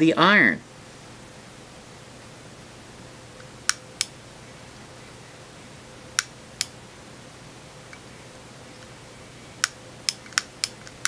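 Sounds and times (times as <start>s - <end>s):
faint steady hum: 0.0s - 11.0s
soldering iron clicks: 3.7s - 4.2s, 6.2s - 6.8s, 9.6s - 11.0s.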